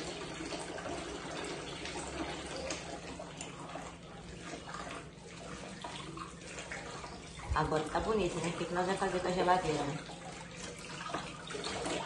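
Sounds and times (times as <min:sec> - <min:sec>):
dishes being rinsed: 0:00.0 - 0:12.0
tap water splashing into sink: 0:00.0 - 0:12.0.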